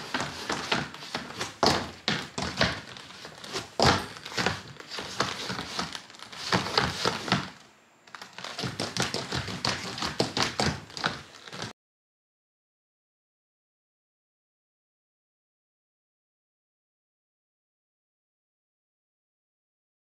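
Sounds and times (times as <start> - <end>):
footsteps on wooden floor: 0.0 - 11.7.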